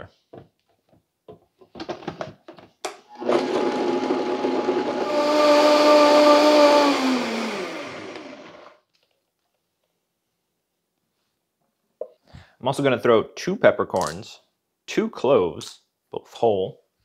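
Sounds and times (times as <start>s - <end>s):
blender motor whirring: 3.1s - 8.8s.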